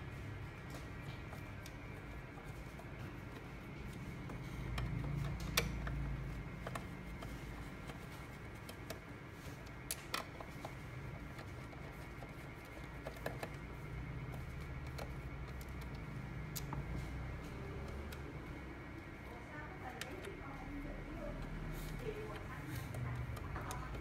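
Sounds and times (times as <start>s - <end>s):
steady low hum: 0.0s - 24.0s
screwdriver clicking on plastic: 3.3s - 13.6s, 21.4s - 24.0s.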